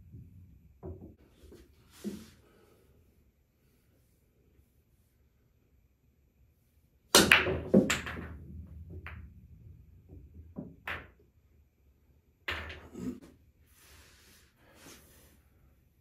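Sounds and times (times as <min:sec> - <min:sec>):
pool balls clacking: 0:07.2 - 0:11.2.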